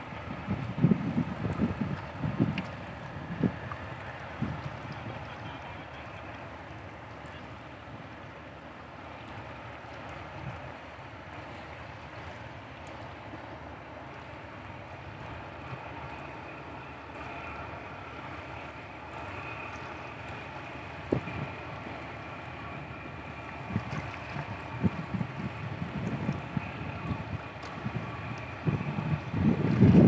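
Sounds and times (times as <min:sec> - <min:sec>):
wind buffeting microphone: 0:00.0 - 0:05.4, 0:19.3 - 0:30.0
faint steady whine: 0:00.0 - 0:30.0
steady outdoor wash: 0:00.0 - 0:30.0.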